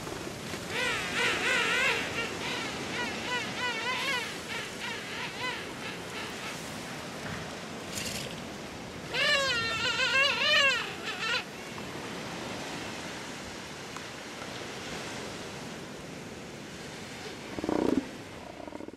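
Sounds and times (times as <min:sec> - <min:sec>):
elephant seal wailing: 0:09.1 - 0:11.5, 0:17.4 - 0:18.9.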